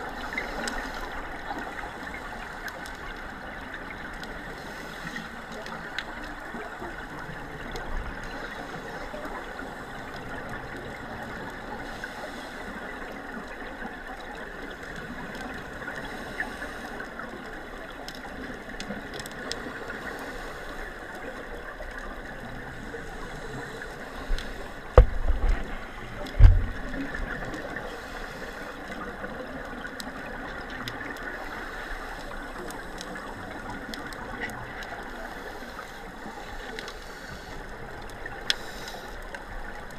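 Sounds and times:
muffled underwater water noise: 0.0s - 39.9s
low thumps: 24.9s - 25.7s, 26.3s - 27.0s.

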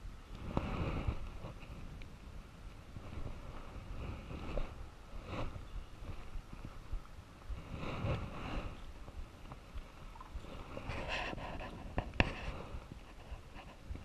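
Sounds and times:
dry grass and clothing rustling: 0.0s - 14.0s.

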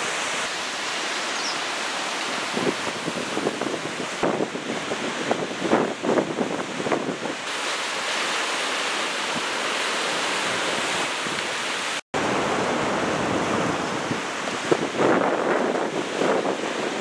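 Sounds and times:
ocean surf breaking: 0.0s - 17.0s
wind blowing on microphone: 2.3s - 7.6s, 10.2s - 17.0s.

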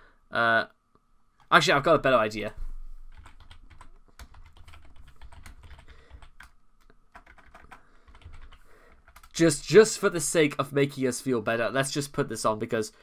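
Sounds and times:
typing on computer keyboard: 3.1s - 9.4s.

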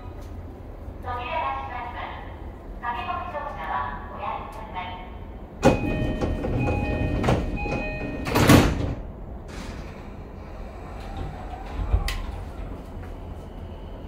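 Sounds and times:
train low rumble: 0.0s - 14.0s
door warning chime: 5.6s - 8.8s
train doors shutting with thud: 5.6s - 13.2s.

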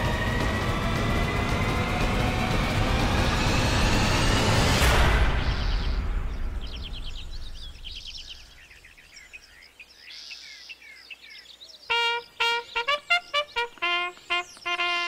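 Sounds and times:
birds chirping: 5.3s - 15.0s
trumpet tune: 11.9s - 15.0s.

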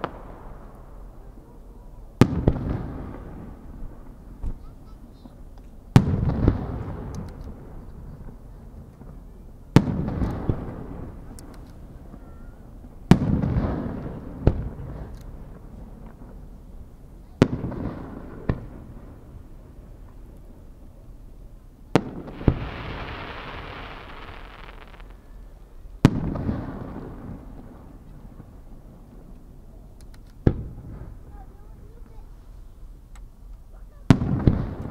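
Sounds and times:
firework bangs: 2.2s - 7.8s, 9.0s - 16.5s, 17.4s - 20.6s, 21.9s - 29.2s, 34.0s - 34.9s
hissing crackle: 22.0s - 25.7s.

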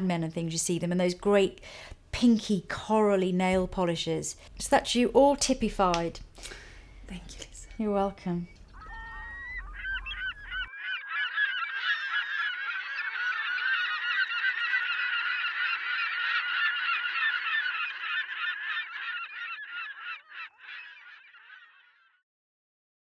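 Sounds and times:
flock of birds calling: 8.5s - 22.1s.

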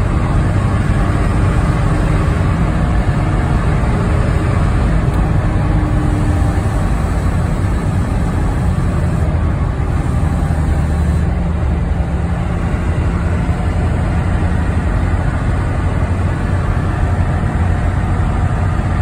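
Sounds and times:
diesel engine drone: 0.0s - 19.0s.

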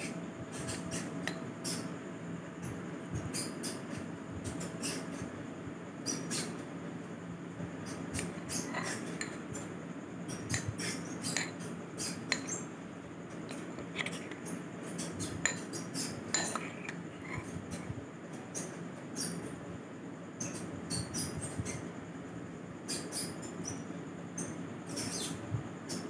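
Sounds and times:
steady low hum: 0.0s - 26.0s
spoon clinking on bowl: 16.3s - 17.0s.

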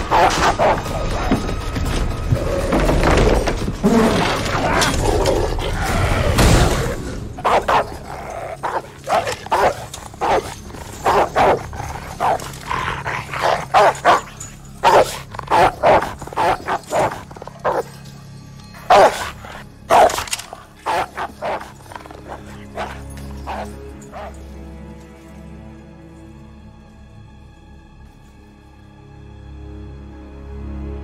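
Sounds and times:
dog barking aggressively: 0.0s - 1.2s, 7.3s - 18.0s, 18.8s - 24.4s.

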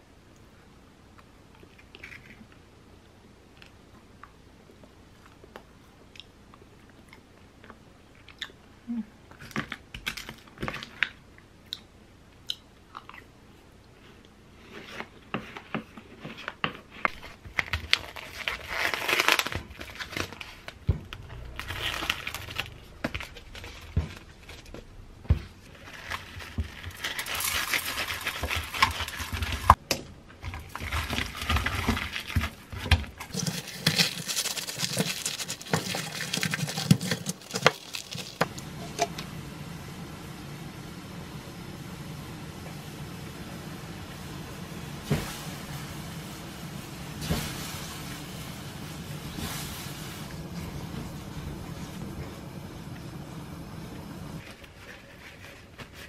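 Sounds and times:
lemons scrubbed with coarse salt: 30.7s - 38.6s
wooden spoon scraping wooden bowl: 33.2s - 38.4s.

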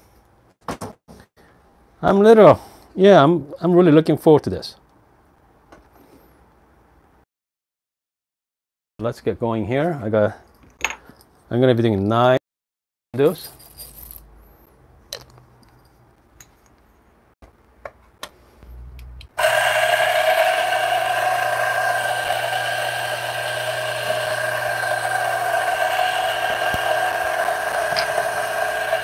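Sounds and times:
coffee grinder whining: 19.4s - 29.0s.

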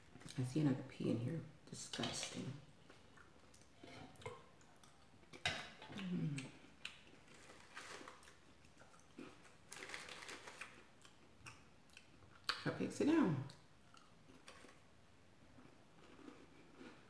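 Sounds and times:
person humming: 5.9s - 6.6s
cracker wrapper crinkle: 6.9s - 11.2s.

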